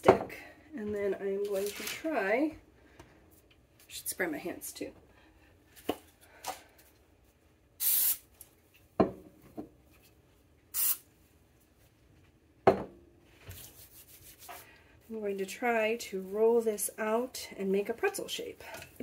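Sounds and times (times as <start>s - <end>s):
spray can hissing: 7.8s - 8.2s, 10.8s - 11.0s
hands rubbing oil: 13.5s - 14.7s.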